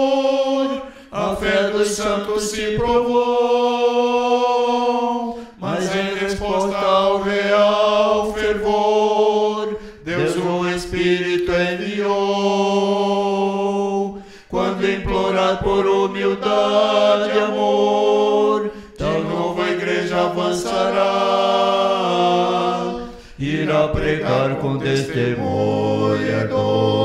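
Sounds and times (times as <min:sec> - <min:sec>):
male vocal quartet singing hymn: 0:00.0 - 0:27.0.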